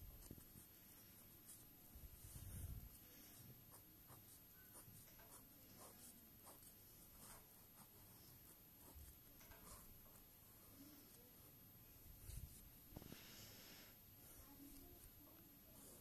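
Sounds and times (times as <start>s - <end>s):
pen scratching on paper: 0.1s - 10.3s, 14.2s - 16.0s.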